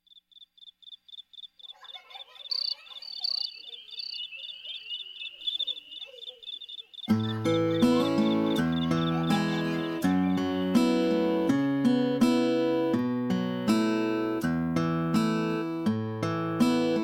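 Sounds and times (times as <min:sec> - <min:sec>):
cricket chirping: 0:00.0 - 0:09.9
other insect calls: 0:00.0 - 0:11.4
acoustic guitar music: 0:07.1 - 0:17.0.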